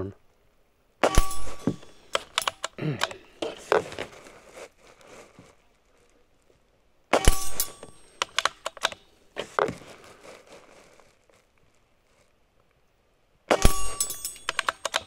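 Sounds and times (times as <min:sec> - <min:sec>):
metallic ring of target: 0:01.0 - 0:02.6, 0:07.1 - 0:08.3, 0:13.5 - 0:15.0
rifle bolt clicks: 0:01.0 - 0:03.2, 0:07.2 - 0:09.0, 0:13.5 - 0:15.0.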